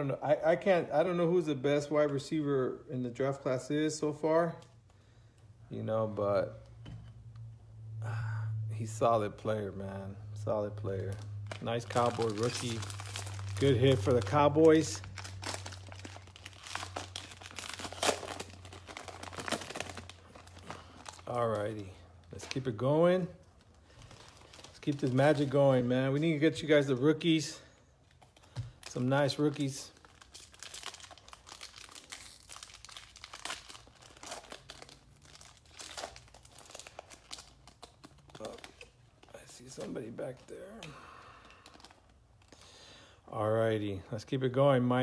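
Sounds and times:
steady low hum: 0:04.8 - 0:36.3
plastic wrapper crinkling and tearing: 0:10.5 - 0:42.9.

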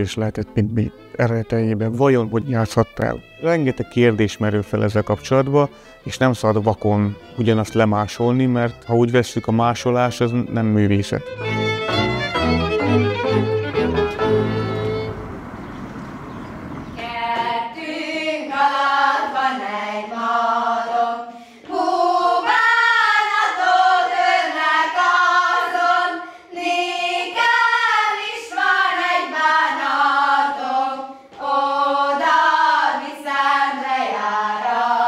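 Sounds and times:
women and girls singing: 0:17.0 - 0:35.0.

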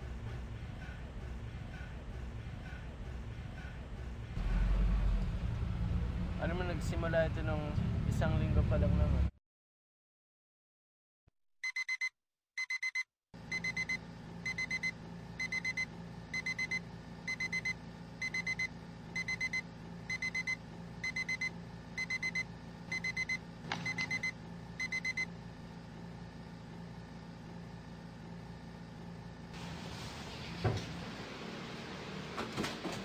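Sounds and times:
alarm clock beeping: 0:11.6 - 0:25.3
low room hum: 0:13.4 - 0:33.0.

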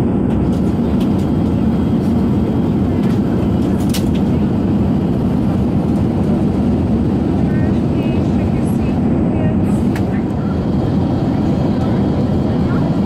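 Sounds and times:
airplane cabin noise: 0:00.0 - 0:13.0.

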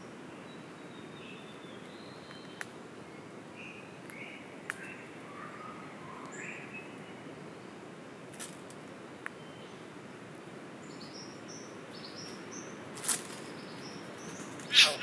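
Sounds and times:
small birds chirping: 0:10.8 - 0:15.0.

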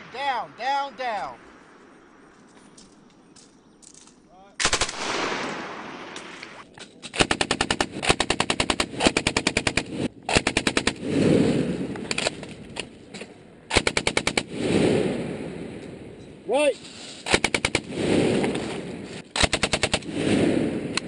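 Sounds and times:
rumbling gunfire echo: 0:04.6 - 0:06.6, 0:13.7 - 0:16.2, 0:17.3 - 0:21.0
machine gun bursts: 0:13.7 - 0:14.5, 0:19.3 - 0:20.2.

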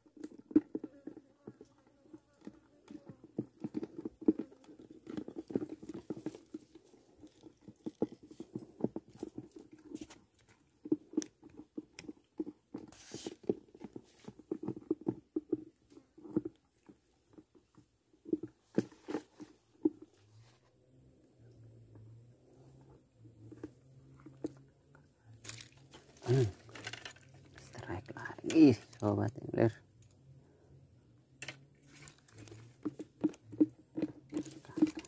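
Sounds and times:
fishing rod handling taps and knocks: 0:25.4 - 0:29.0.

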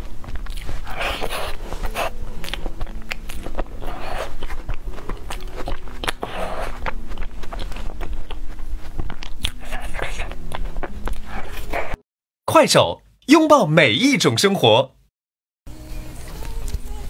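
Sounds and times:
wet chewing and lip smacks: 0:00.2 - 0:12.0.

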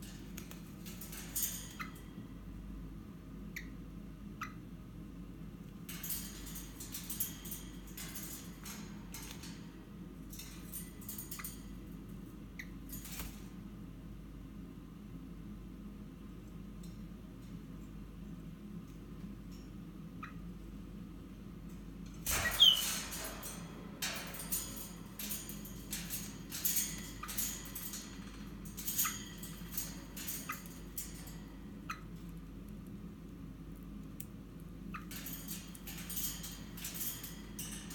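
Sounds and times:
steady low hum: 0:00.0 - 0:37.9
bird claws scratching wire: 0:22.3 - 0:32.1, 0:35.0 - 0:37.9
bird squeaks: 0:22.4 - 0:22.9.

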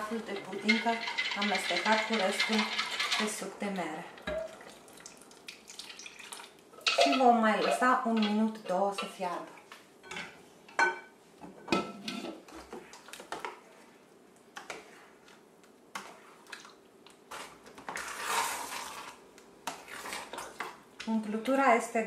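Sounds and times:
wet squelching stir: 0:14.7 - 0:20.8.

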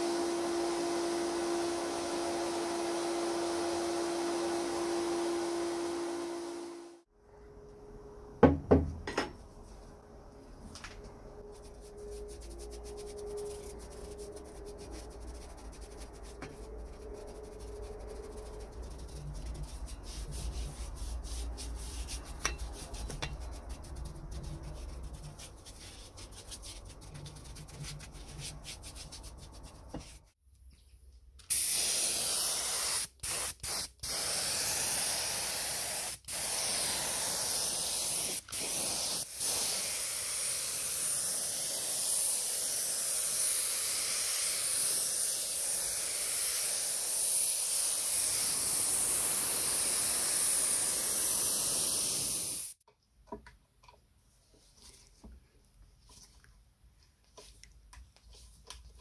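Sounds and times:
paintbrush scrubbing: 0:11.4 - 0:30.4, 0:57.2 - 0:59.0
spray gun hissing: 0:31.5 - 0:52.8.

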